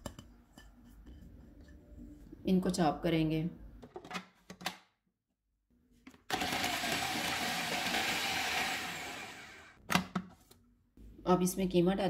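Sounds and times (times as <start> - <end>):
food chopper motor chopping: 6.3 - 9.8.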